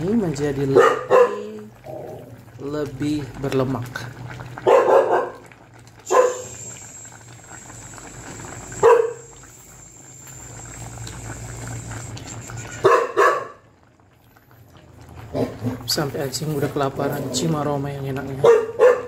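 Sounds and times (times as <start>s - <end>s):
dog barking: 0.7s - 1.6s, 4.6s - 5.5s, 6.1s - 6.6s, 8.8s - 9.3s, 12.8s - 13.6s, 18.4s - 19.0s.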